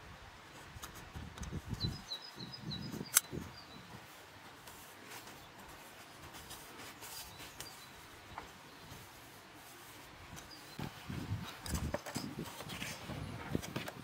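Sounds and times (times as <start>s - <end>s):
gloved hands rustling: 0.4s - 14.0s
scuffing of handling: 3.8s - 13.8s.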